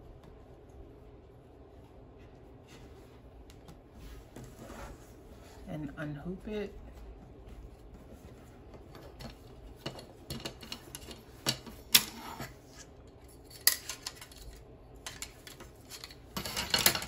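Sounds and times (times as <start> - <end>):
fabric rustling: 1.1 - 9.8.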